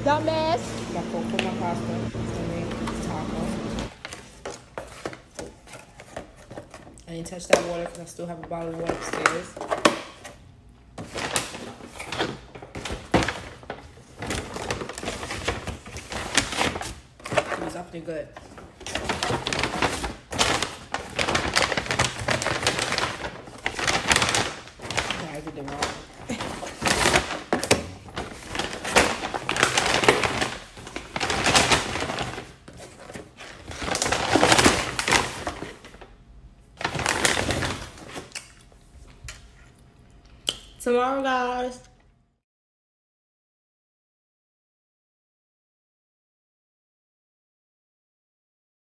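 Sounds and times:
paper bag rustling: 0:00.0 - 0:07.0, 0:11.0 - 0:36.2, 0:36.8 - 0:38.3.

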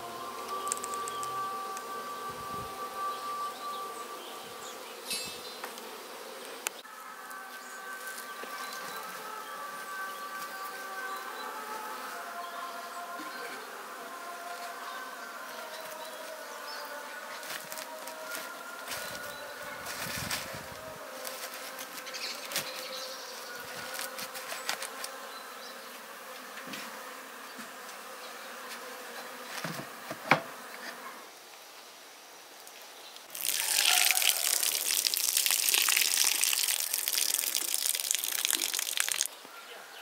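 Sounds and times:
honeybees buzzing: 0:00.0 - 0:31.4, 0:33.2 - 0:39.4
liquid splashing onto ground: 0:33.3 - 0:39.3.

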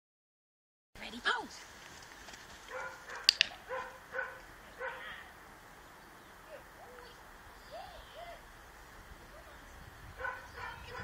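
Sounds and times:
dog yelping: 0:02.7 - 0:05.2
sharp clicks: 0:03.2 - 0:03.6.

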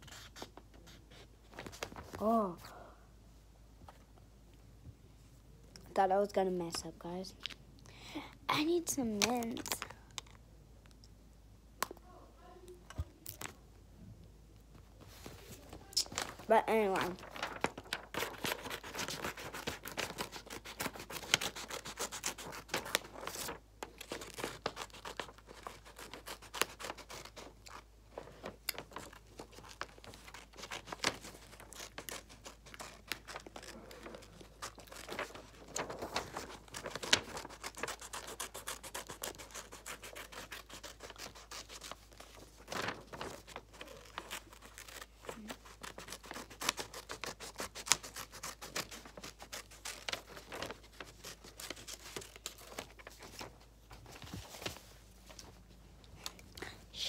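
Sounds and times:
paper rustling: 0:00.0 - 0:02.5, 0:14.8 - 0:56.5
scissors snipping paper: 0:18.0 - 0:27.8, 0:28.7 - 0:52.9.

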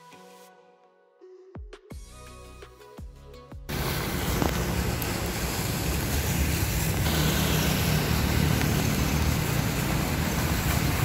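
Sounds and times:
vehicle engine and road rumble: 0:03.7 - 0:11.0.

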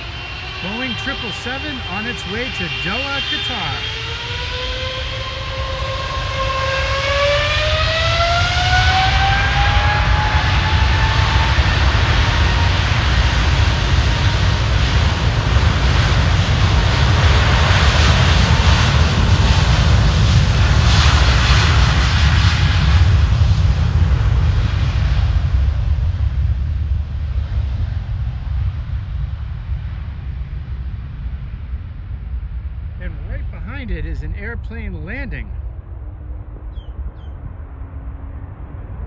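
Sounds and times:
jet engines spooling up: 0:00.0 - 0:23.3
deep jet roar: 0:00.0 - 0:39.0.

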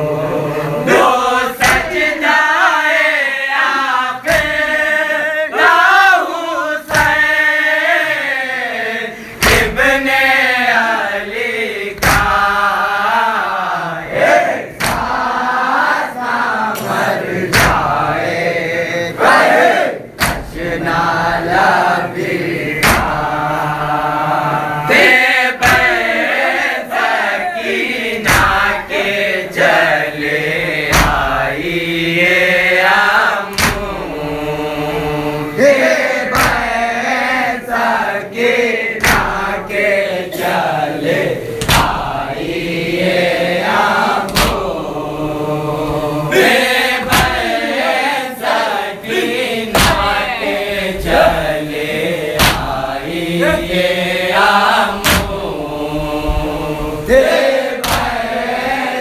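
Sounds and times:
men chanting in unison: 0:00.0 - 0:59.0
hands slapping chests: 0:01.6 - 0:02.1, 0:04.2 - 0:04.8, 0:06.8 - 0:07.4, 0:09.4 - 0:10.0, 0:12.0 - 0:12.6, 0:14.1 - 0:15.3, 0:16.7 - 0:18.0, 0:20.2 - 0:21.0, 0:22.8 - 0:23.3, 0:25.6 - 0:26.1, 0:28.2 - 0:28.8, 0:30.8 - 0:31.4, 0:33.4 - 0:34.0, 0:36.3 - 0:36.8, 0:39.0 - 0:39.6, 0:41.6 - 0:42.1, 0:44.2 - 0:44.8, 0:47.0 - 0:47.6, 0:49.7 - 0:50.3, 0:52.3 - 0:52.8, 0:54.9 - 0:55.5, 0:57.1 - 0:58.4.

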